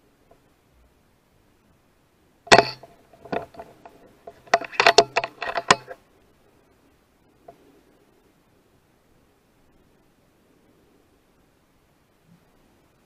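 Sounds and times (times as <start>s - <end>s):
metallic clicking and clinking: 2.5s - 6.0s.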